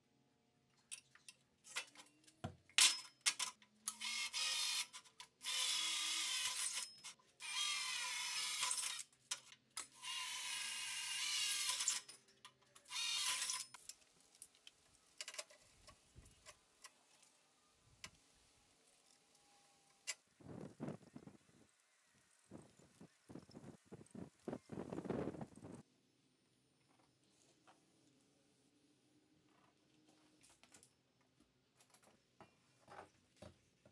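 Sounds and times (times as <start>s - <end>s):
clicks and knocks of steel parts: 0.8s - 4.0s, 8.6s - 10.0s, 15.2s - 17.0s
cordless drill boring into steel: 3.9s - 9.1s, 9.9s - 12.1s, 12.8s - 13.7s.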